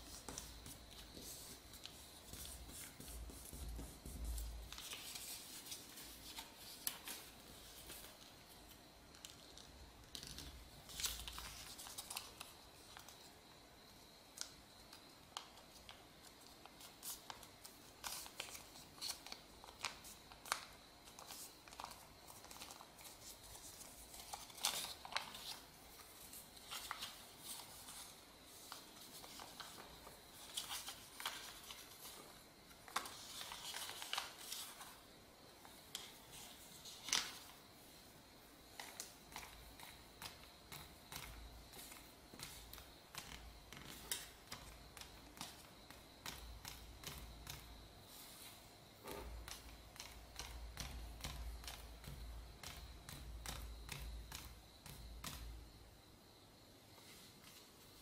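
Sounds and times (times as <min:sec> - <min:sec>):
paper crinkling and rustling: 0:00.0 - 0:13.2, 0:15.4 - 0:35.0, 0:35.6 - 0:37.6.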